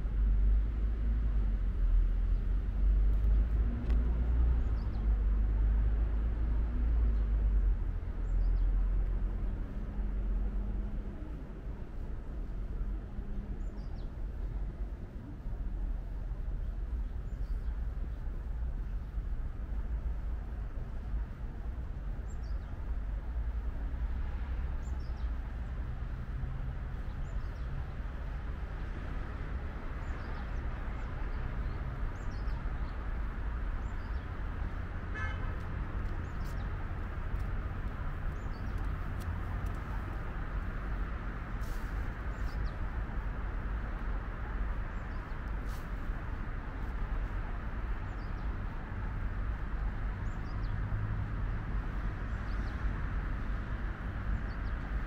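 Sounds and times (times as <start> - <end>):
distant traffic hum: 0.0 - 55.0
bird chirping: 38.3 - 38.9.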